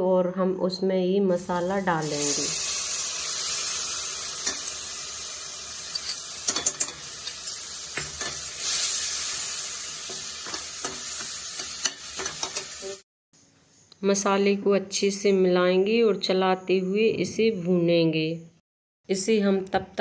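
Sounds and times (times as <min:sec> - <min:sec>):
paste sizzling in hot oil: 0:01.4 - 0:13.0
metal spoon scraping pan: 0:08.0 - 0:08.9.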